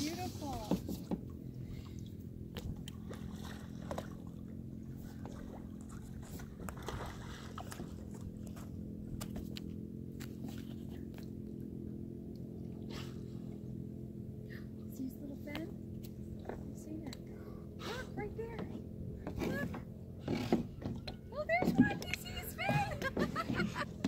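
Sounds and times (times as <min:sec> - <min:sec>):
steady low hum: 0:00.0 - 0:24.0
water splashing and lapping: 0:00.0 - 0:24.0
breathy puff: 0:17.8 - 0:18.2.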